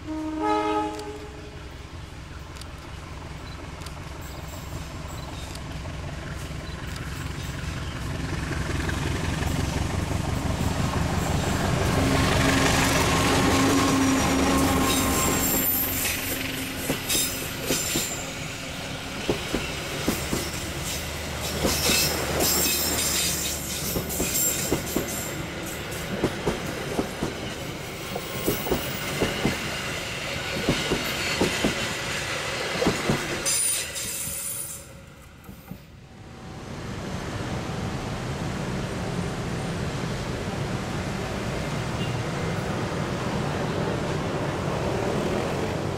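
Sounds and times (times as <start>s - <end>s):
train running rumble: 0.1s - 45.9s
train wheels clickety-clack: 3.9s - 35.9s.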